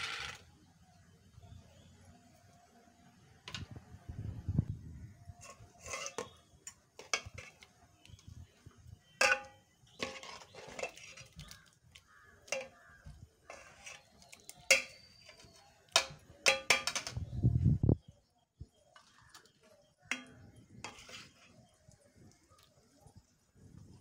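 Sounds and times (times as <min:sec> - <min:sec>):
metal ladle clinking and scraping pot: 0:05.4 - 0:08.3, 0:09.2 - 0:12.8, 0:13.5 - 0:17.2, 0:19.0 - 0:21.7.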